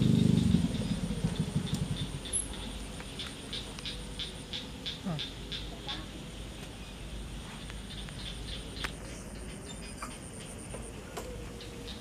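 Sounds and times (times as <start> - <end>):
steady low rumble: 0.0 - 5.5.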